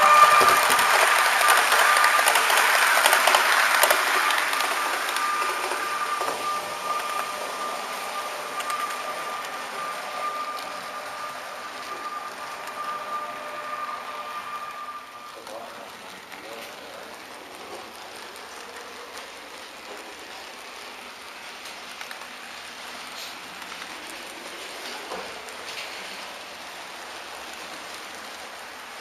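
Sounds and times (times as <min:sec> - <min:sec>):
thin steady whine: 0:00.0 - 0:18.4
model train passing: 0:00.0 - 0:29.0
model train wheels rattling on rails: 0:00.0 - 0:29.0
rail clicks: 0:00.0 - 0:29.0.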